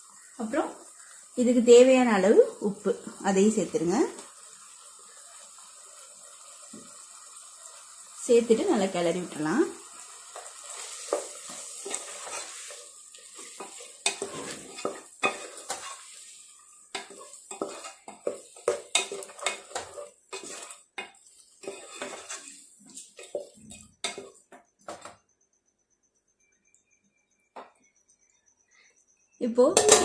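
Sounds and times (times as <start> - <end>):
food sizzling: 0.0 - 25.2, 29.4 - 30.0
wooden spatula scraping a pot: 10.3 - 25.0.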